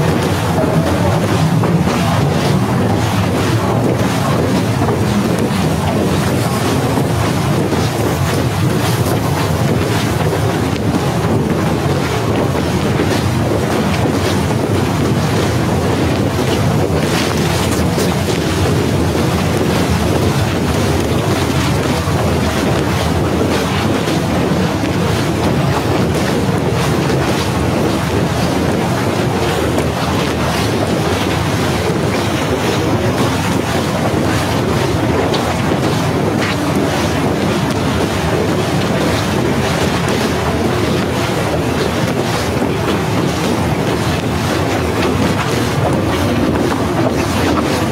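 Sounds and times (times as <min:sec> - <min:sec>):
gusting wind buffeting microphone: 0:00.0 - 0:47.9.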